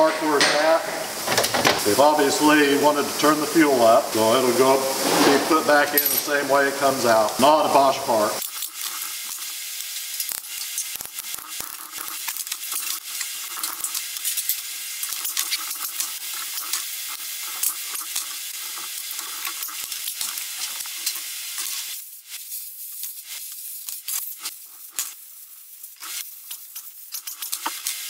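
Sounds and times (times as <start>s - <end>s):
crackling hiss: 0.1s - 28.0s.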